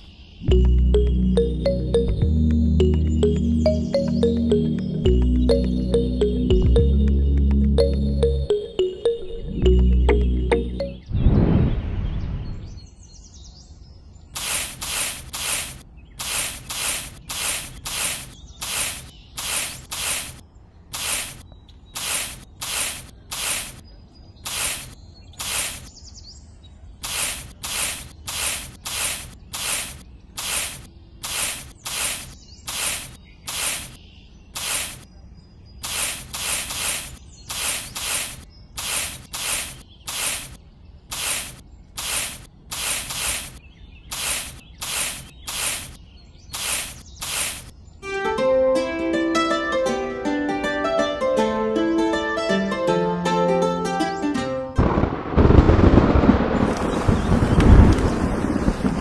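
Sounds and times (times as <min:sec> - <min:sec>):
hoe scraping through sand: 0:14.4 - 0:21.4, 0:22.0 - 0:23.8, 0:24.5 - 0:25.9, 0:27.0 - 0:34.0, 0:34.6 - 0:35.0, 0:35.8 - 0:46.0, 0:46.6 - 0:47.7.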